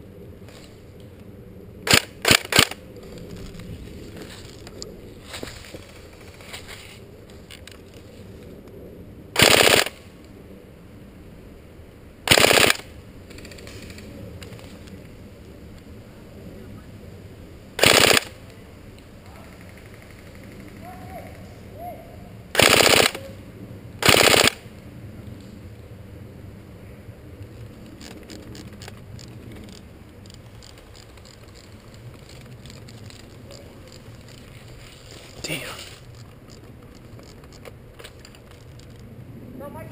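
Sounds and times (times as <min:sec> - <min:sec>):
camera handling rumble: 0:01.8 - 0:08.7, 0:12.7 - 0:15.2, 0:27.4 - 0:39.1
airsoft rifle full-auto bursts: 0:01.9 - 0:02.8, 0:09.4 - 0:10.0, 0:12.3 - 0:12.9, 0:17.8 - 0:18.4, 0:22.6 - 0:23.2, 0:24.0 - 0:24.6
footsteps in dry leaves: 0:30.4 - 0:36.2.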